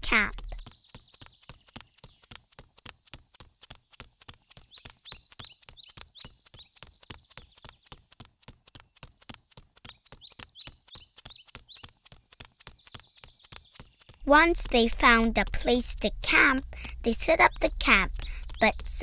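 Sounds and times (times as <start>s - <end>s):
quick footsteps: 0.0s - 19.0s
high bird chirps: 4.5s - 7.9s, 9.8s - 14.2s, 16.0s - 19.0s.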